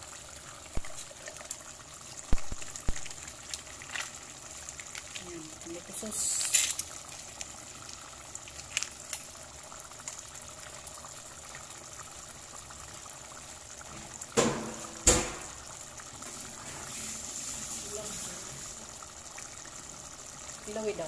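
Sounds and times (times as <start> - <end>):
sauce simmering bubbling: 0.0 - 21.0
short loud knocks: 14.4 - 15.6.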